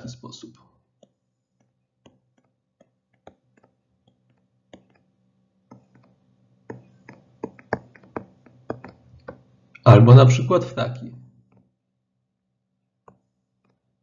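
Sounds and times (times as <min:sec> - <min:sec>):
stylus tapping on tablet: 0:00.9 - 0:09.5, 0:13.0 - 0:13.9.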